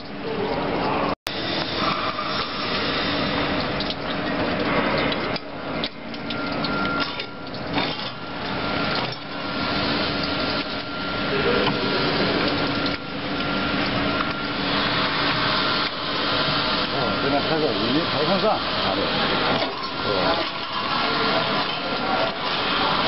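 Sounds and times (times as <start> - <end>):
machinery humming: 5.8 - 23.0.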